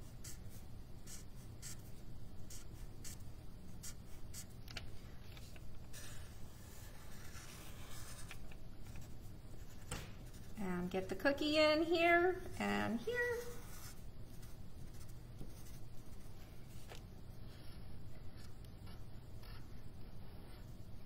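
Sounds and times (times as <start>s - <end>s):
felt-tip marker scratching on paper: 0.0s - 3.2s, 5.9s - 10.6s, 12.6s - 16.3s
faint low room hum: 0.0s - 21.0s.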